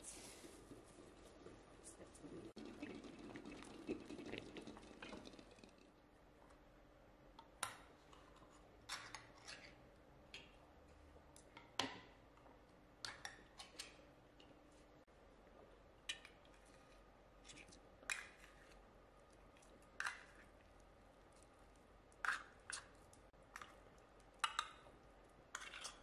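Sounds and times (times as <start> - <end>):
water running: 0.8 - 5.9.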